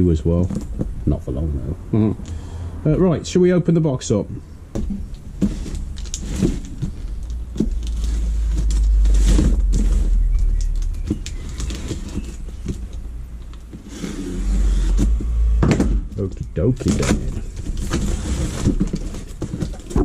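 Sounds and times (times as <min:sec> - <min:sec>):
cardboard rustling and scraping: 0:04.7 - 0:15.5, 0:16.2 - 0:20.0
low rumble: 0:05.8 - 0:13.7.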